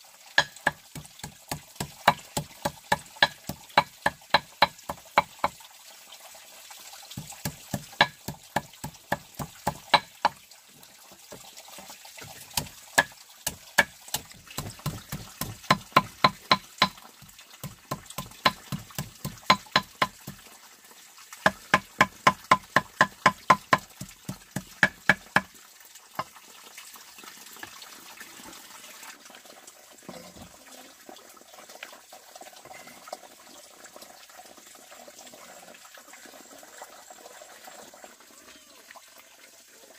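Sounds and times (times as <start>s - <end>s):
rapid ringing knocks: 7.7s - 8.7s, 18.2s - 20.2s.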